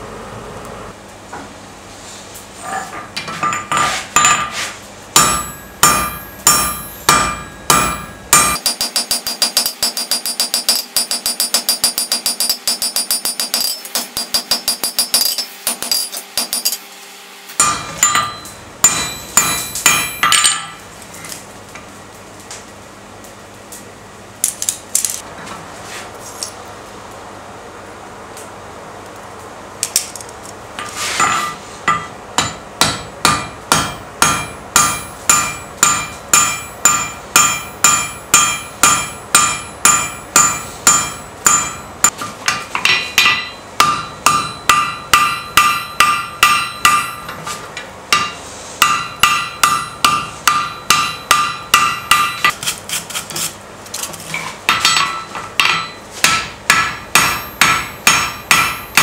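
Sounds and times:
hammer blows ringing on anvil: 0:05.2 - 0:16.8, 0:17.6 - 0:20.8, 0:31.2 - 0:47.5, 0:48.1 - 0:52.5, 0:54.7 - 0:59.0.

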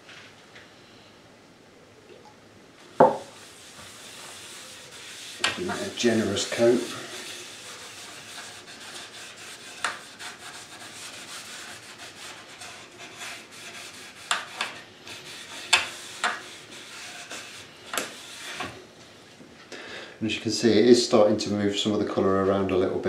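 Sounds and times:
cloth rubbing on wood: 0:03.0 - 0:18.8.

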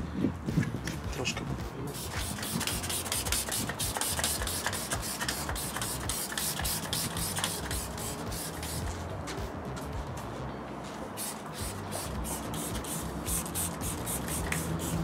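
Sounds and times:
spray bottle squirting: 0:01.9 - 0:09.0, 0:11.2 - 0:15.0.

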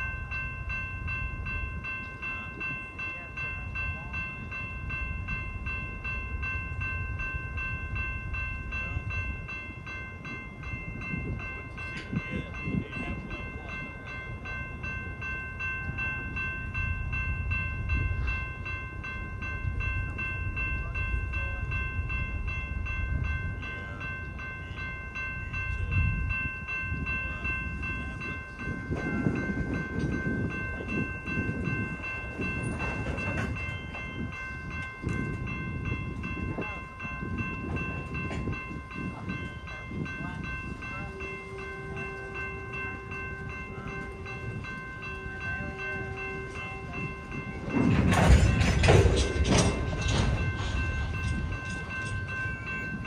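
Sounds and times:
crossing bell ringing: 0:00.0 - 0:53.0
train wheels rumbling on rail: 0:00.0 - 0:53.0
freight car clanks and knocks: 0:47.8 - 0:51.2.

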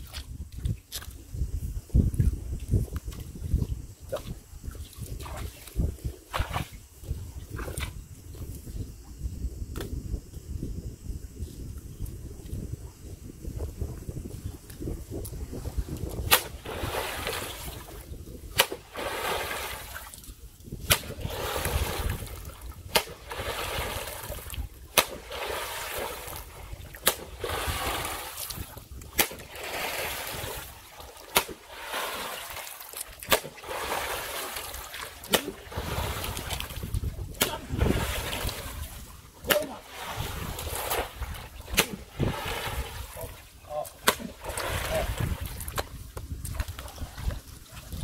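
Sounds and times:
muddy water slapping: 0:04.1 - 0:08.0, 0:15.2 - 0:48.0.

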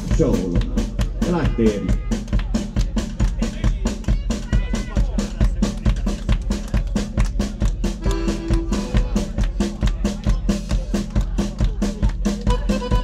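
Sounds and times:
accordion chords: 0:00.0 - 0:03.1, 0:07.8 - 0:09.9, 0:12.2 - 0:13.0
drum kit beat: 0:00.0 - 0:13.0
live rock band playing: 0:00.0 - 0:13.0.

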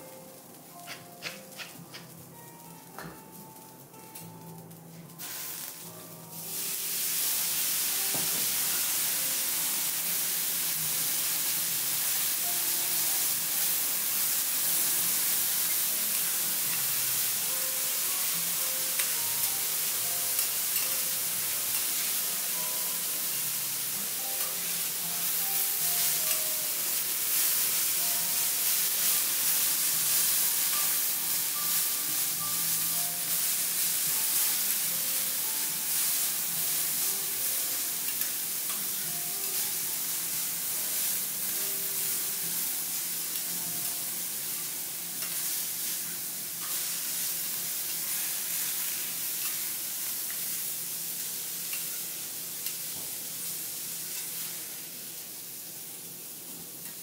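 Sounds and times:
vegetables sizzling on griddle: 0:00.0 - 0:57.0
metal spatulas scraping steel: 0:00.9 - 0:02.0.

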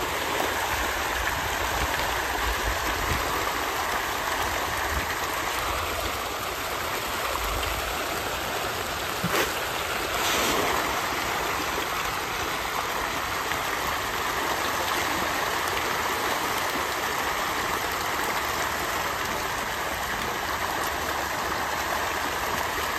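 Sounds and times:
fish splashing at surface: 0:09.0 - 0:11.7.

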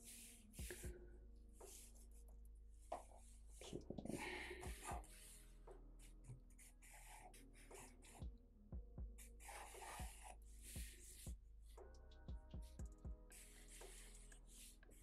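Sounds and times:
marker scratching on paper: 0:00.1 - 0:00.8, 0:01.6 - 0:02.0, 0:06.0 - 0:08.2, 0:09.2 - 0:11.3, 0:13.3 - 0:15.0.

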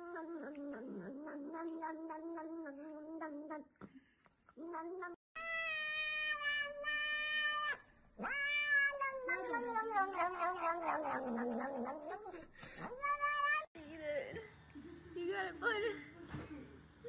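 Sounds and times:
cat meowing: 0:04.6 - 0:12.2, 0:12.8 - 0:13.7.

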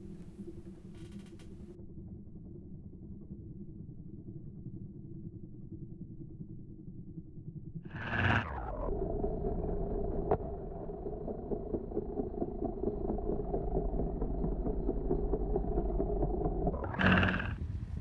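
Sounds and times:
rush of noise: 0:07.9 - 0:17.6
helicopter rotor chopping: 0:07.9 - 0:18.0.

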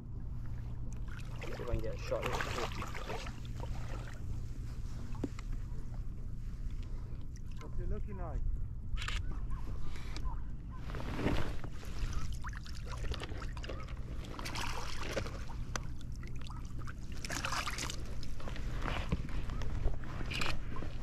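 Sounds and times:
seawater splashing and sloshing: 0:00.4 - 0:05.3, 0:10.8 - 0:21.0
fish thrashing at surface: 0:11.9 - 0:15.6.

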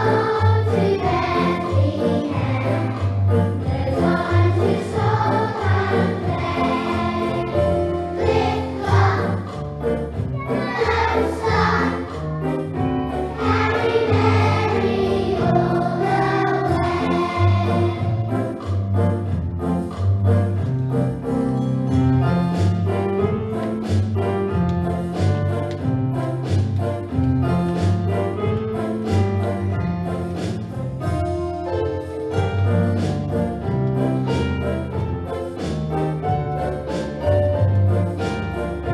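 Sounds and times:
children singing: 0:00.0 - 0:09.6, 0:10.4 - 0:12.6, 0:13.3 - 0:18.5
instrumental backing: 0:00.0 - 0:38.9.

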